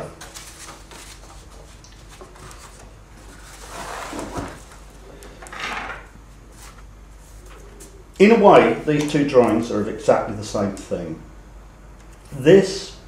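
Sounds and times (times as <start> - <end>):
paper rustling on a table: 0.0 - 5.0, 6.5 - 7.9.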